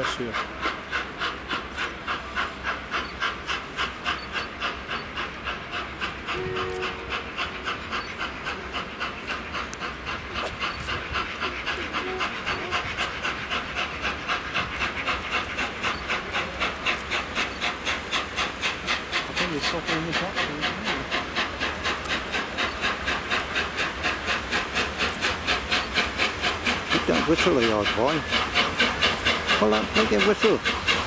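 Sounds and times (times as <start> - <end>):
steam locomotive chuffing: 0.0 - 31.0.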